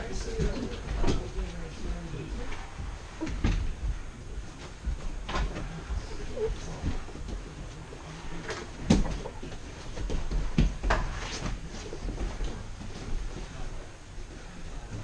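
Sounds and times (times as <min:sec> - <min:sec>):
bodies thudding on gym mats: 0:08.7 - 0:13.4.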